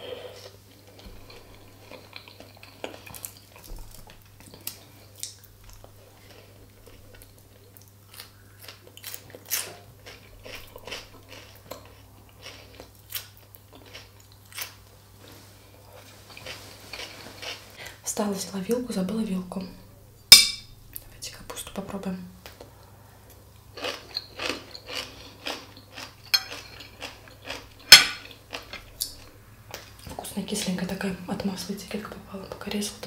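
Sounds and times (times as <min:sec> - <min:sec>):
person chewing and crunching: 0:00.2 - 0:14.9, 0:15.8 - 0:17.8, 0:22.4 - 0:30.1.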